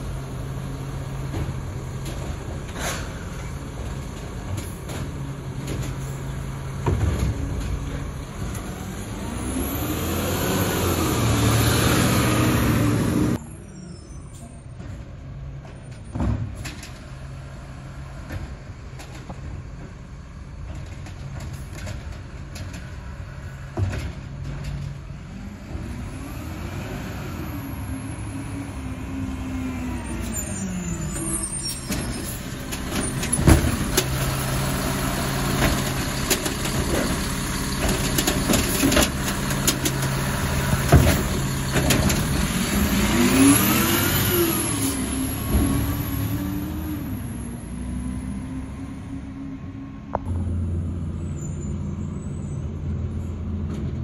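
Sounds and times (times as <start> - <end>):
truck engine revving: 0.0 - 13.4, 25.2 - 53.1.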